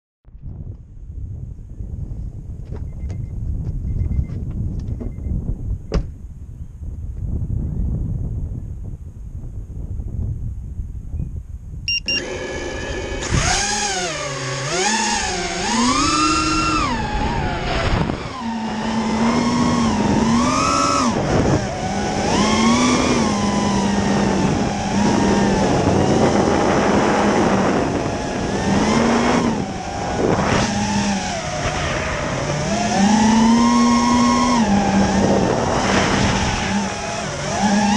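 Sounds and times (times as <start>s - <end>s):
drone motors whining: 11.9s - 37.9s
low rumble: 24.0s - 37.4s.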